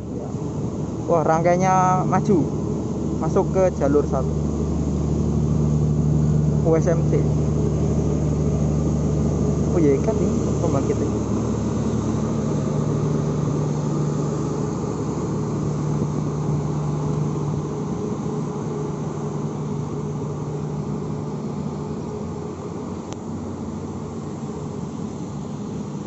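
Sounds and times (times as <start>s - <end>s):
train diesel generator hum: 0.0s - 26.0s.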